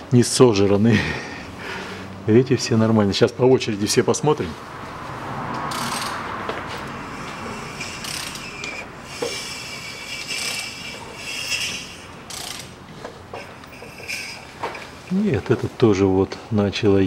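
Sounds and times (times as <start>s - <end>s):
ratchet wrench clicking: 5.6s - 6.2s, 7.1s - 14.9s.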